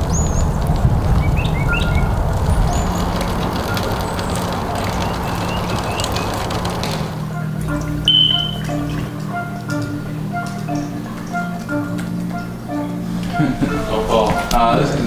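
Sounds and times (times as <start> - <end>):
high bird chirps: 0.0 - 6.6, 8.0 - 9.2
traffic rumble: 0.0 - 15.0.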